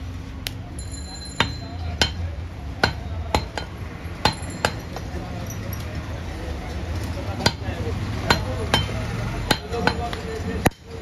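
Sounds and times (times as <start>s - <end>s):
knife chopping on wooden block: 8.3s - 10.8s.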